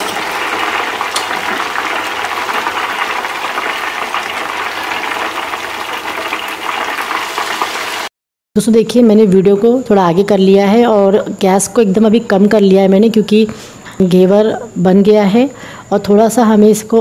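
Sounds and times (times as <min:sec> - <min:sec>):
hot oil sizzling and crackling: 0:00.0 - 0:08.1.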